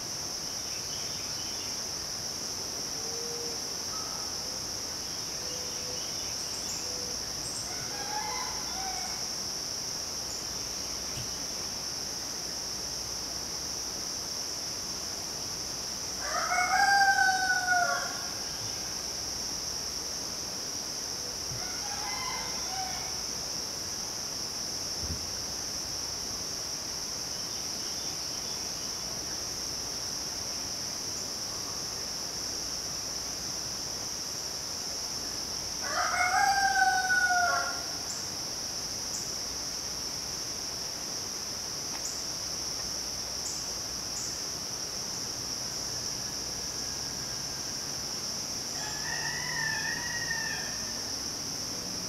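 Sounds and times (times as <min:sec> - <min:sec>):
insects droning: 0:00.0 - 0:52.0
rooster crowing: 0:07.6 - 0:09.3, 0:16.2 - 0:18.6, 0:21.6 - 0:23.3, 0:35.8 - 0:38.0, 0:46.2 - 0:47.8, 0:48.7 - 0:51.1.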